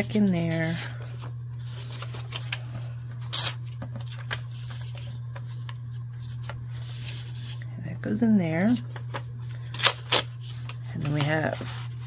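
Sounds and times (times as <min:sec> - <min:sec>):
paper rustling and crinkling: 0:00.0 - 0:07.7, 0:08.5 - 0:12.0
low hum: 0:00.0 - 0:12.0.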